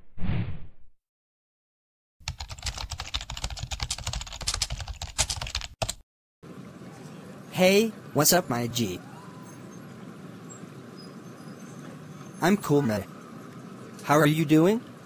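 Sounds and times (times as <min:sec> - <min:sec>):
keyboard typing clicks: 0:02.3 - 0:06.0.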